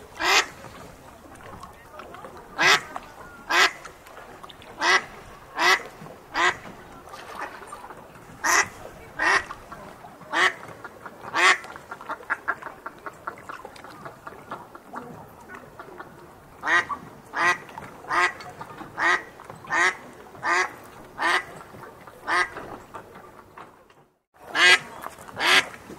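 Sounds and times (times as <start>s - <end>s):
duck quacking: 0.2s - 0.6s, 2.6s - 3.8s, 4.8s - 6.7s, 8.4s - 9.6s, 10.3s - 12.7s, 16.6s - 21.5s, 22.2s - 22.6s, 24.5s - 25.7s.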